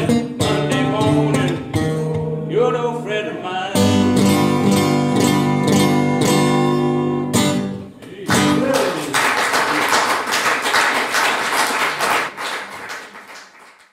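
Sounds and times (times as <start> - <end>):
acoustic guitar strumming: 0.0 - 8.6
people clapping: 8.0 - 13.9.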